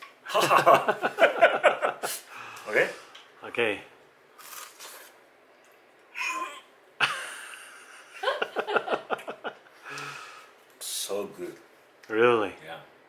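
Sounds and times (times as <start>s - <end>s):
man breathing: 2.3s - 3.2s, 9.8s - 10.6s.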